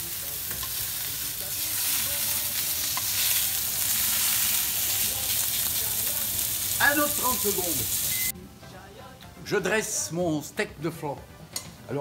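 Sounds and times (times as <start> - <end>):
steak sizzling in frying pan: 0.0 - 8.3
metal tongs turning meat: 0.4 - 6.6.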